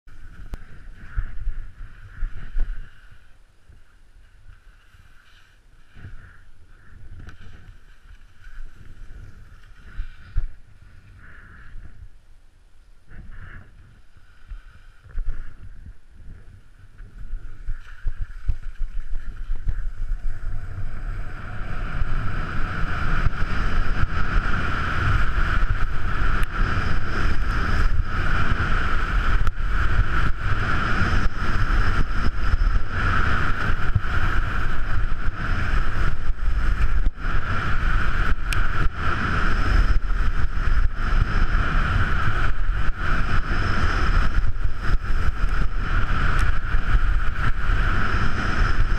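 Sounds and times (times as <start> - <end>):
wind buffeting microphone: 0.1 - 4.8, 5.7 - 48.9
skis hissing over snow: 0.2 - 11.8.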